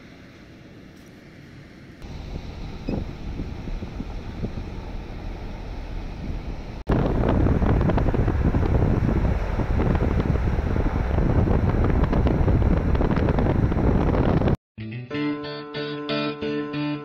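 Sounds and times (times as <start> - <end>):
car road rumble: 0.0 - 14.6
wind buffeting the microphone: 2.0 - 14.6.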